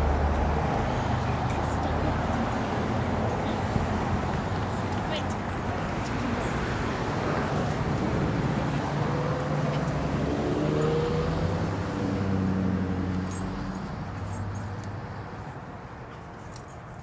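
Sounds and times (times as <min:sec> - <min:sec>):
vehicle engine passing by: 0:05.6 - 0:15.5.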